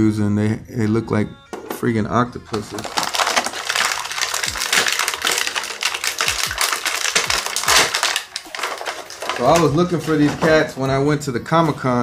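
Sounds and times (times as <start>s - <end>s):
plastic crinkling and clicking: 2.5s - 10.8s.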